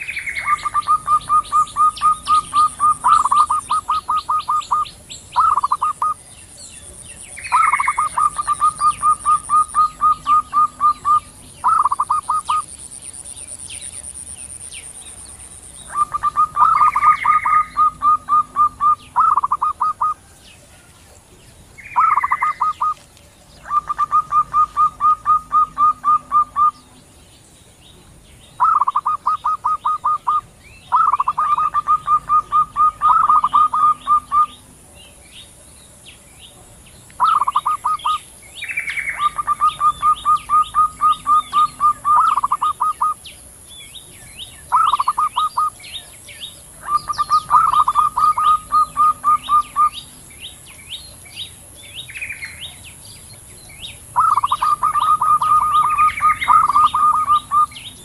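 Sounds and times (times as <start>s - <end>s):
doves cooing: 0.0s - 12.9s, 14.9s - 27.0s, 28.6s - 34.9s, 37.2s - 43.2s, 44.6s - 50.2s, 53.8s - 58.0s
faint bird chirps: 0.0s - 58.0s.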